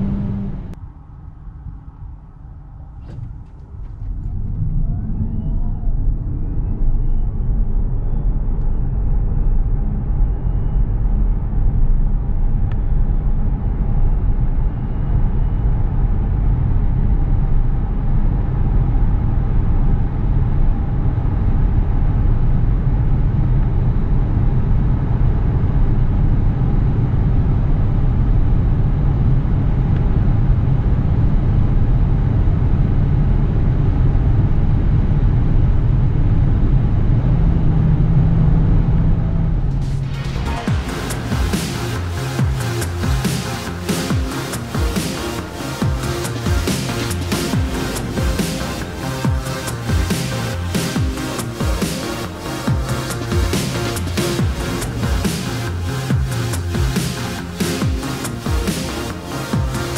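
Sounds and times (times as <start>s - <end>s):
tyre and road noise: 0.0s - 15.7s, 36.3s - 59.9s.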